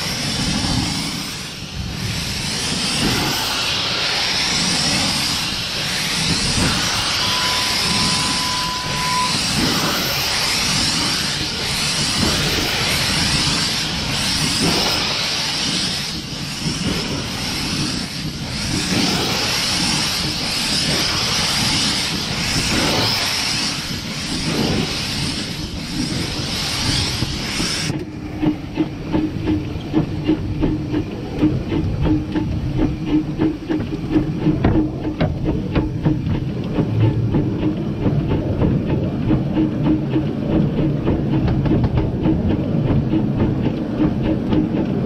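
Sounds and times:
steam hissing loudly: 0:00.0 - 0:35.5.

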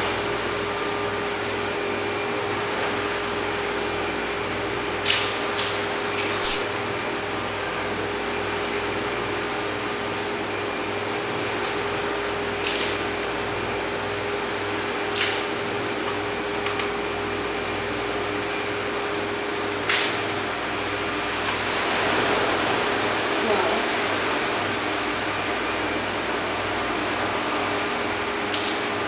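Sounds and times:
aquarium equipment hum: 0:00.0 - 0:29.0.

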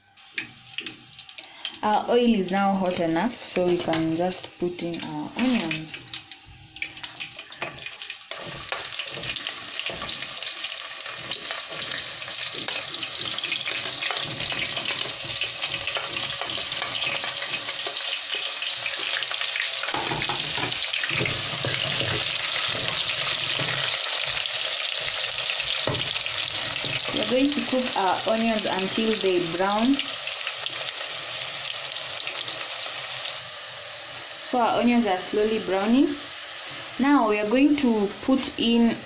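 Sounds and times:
onions sizzling in oil: 0:00.0 - 0:39.0
wooden spoon scraping a pot: 0:07.0 - 0:19.1, 0:20.4 - 0:27.7.

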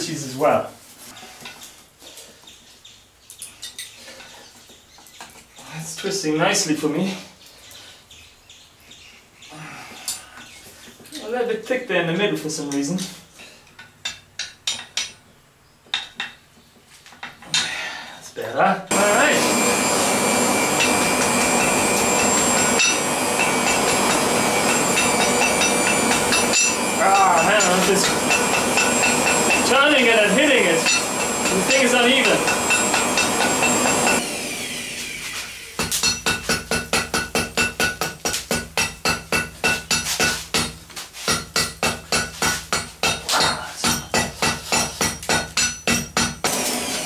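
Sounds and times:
hammer striking metal on anvil: 0:20.6 - 0:29.8, 0:30.6 - 0:34.2, 0:35.8 - 0:46.6.

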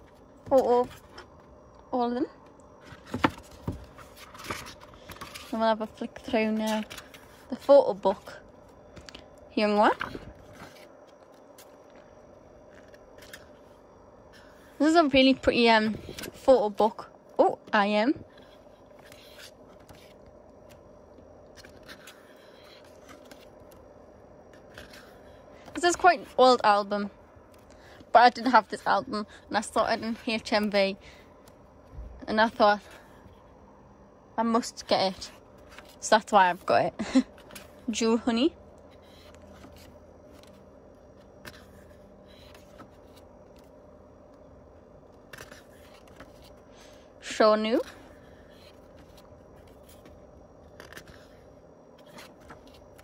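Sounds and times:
steady low hum: 0:00.0 - 0:53.0
paper pages rustling: 0:02.8 - 0:12.1, 0:12.7 - 0:13.8, 0:17.6 - 0:20.8, 0:21.5 - 0:23.9, 0:24.5 - 0:31.6, 0:34.7 - 0:38.2, 0:38.8 - 0:43.8, 0:45.2 - 0:47.0, 0:47.8 - 0:53.0.

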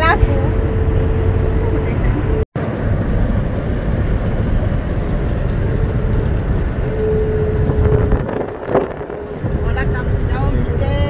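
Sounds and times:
steady whine: 0:00.0 - 0:11.0
vehicle engine and road rumble: 0:00.0 - 0:11.0.

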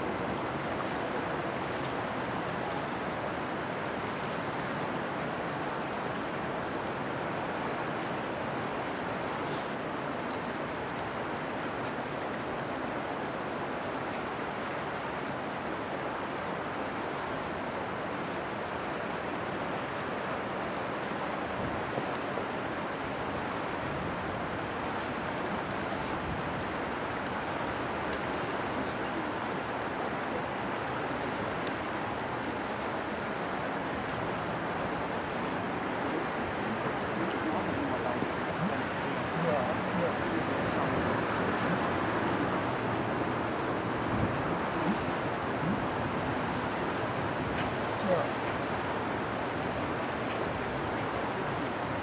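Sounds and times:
river water rushing: 0:00.0 - 0:52.0
wind on microphone: 0:21.5 - 0:52.0.

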